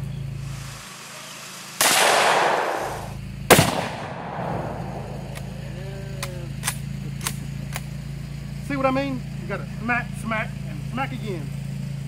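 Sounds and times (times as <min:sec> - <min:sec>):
sharp gunshot crack: 0:00.5 - 0:05.7
rifle shot: 0:00.6 - 0:05.7.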